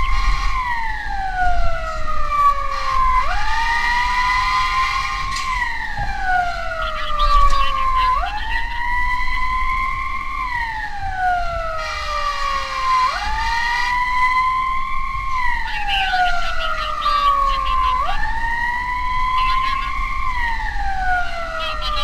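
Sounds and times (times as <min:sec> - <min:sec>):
emergency vehicle siren wailing: 0:00.0 - 0:22.0.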